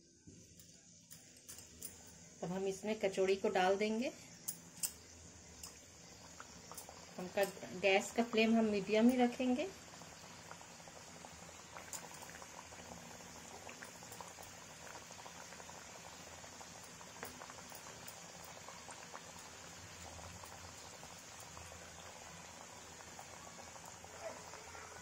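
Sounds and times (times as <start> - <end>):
food deep-frying in hot oil: 0.4 - 25.0
oil popping and crackling: 5.6 - 25.0.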